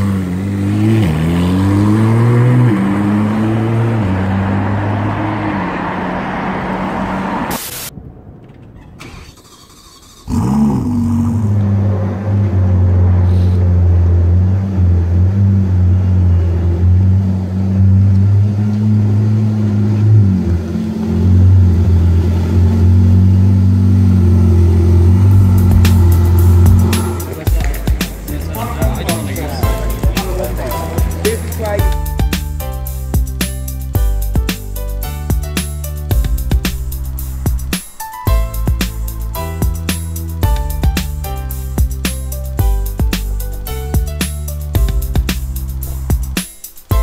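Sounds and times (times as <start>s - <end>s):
car engine driving away: 0.0s - 47.0s
sports car engine idling: 10.2s - 47.0s.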